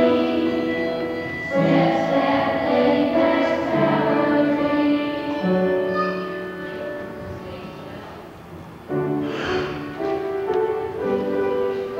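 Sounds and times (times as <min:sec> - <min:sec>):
children singing together: 0:00.0 - 0:07.0.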